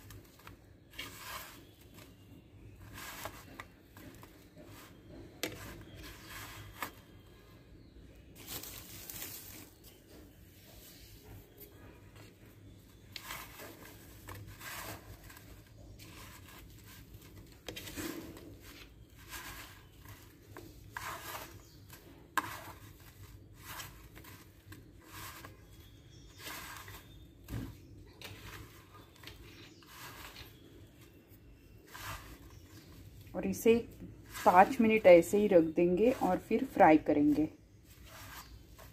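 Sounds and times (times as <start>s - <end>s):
gritty rustling and rubbing: 0.0s - 7.4s, 8.3s - 38.9s.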